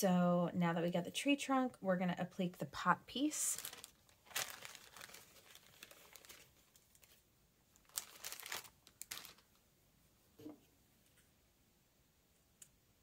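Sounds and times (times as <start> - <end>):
faint crinkling and rustling: 3.1 - 9.6.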